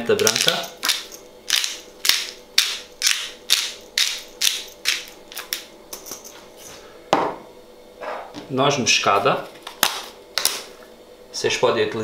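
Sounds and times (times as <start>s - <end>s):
pepper grinder grinding: 0.0s - 6.4s.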